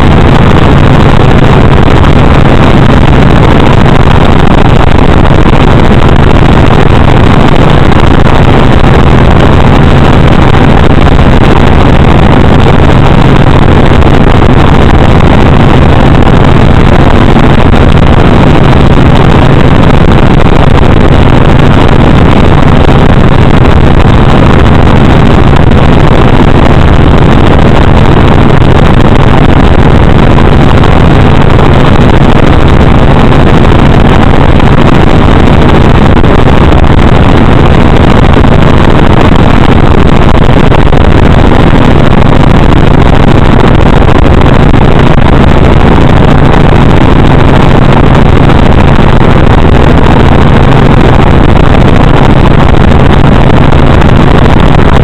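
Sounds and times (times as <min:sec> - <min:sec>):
helicopter rotor and engine noise: 0:00.0 - 0:55.0.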